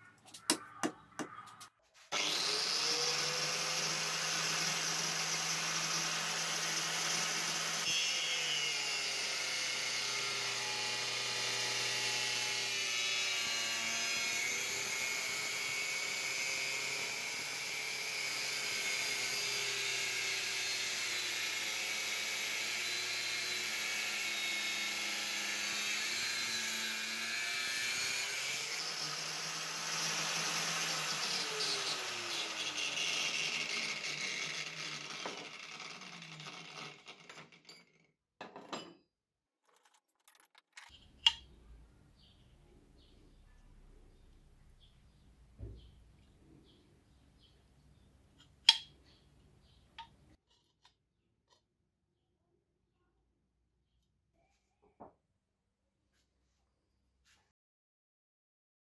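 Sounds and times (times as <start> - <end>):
angle grinder cutting metal: 2.1 - 37.6.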